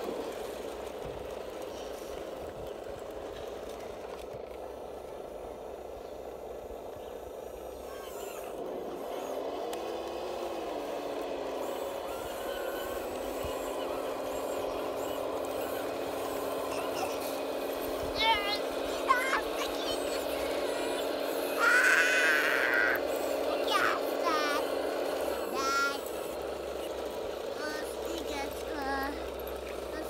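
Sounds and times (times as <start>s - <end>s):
model bulldozer drive whine: 0.0s - 30.0s.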